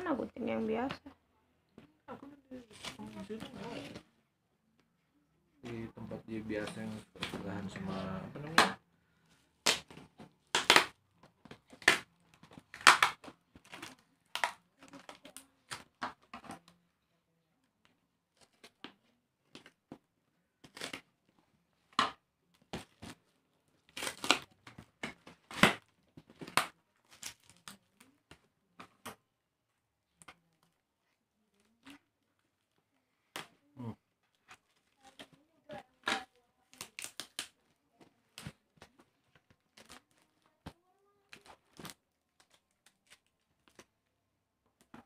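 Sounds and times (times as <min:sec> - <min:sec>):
tape and wrapping crinkling: 0:02.5 - 0:04.1, 0:06.5 - 0:16.8, 0:17.6 - 0:29.2, 0:30.0 - 0:44.1
packing tape ripping: 0:20.6 - 0:21.1, 0:23.8 - 0:28.1, 0:36.0 - 0:37.6.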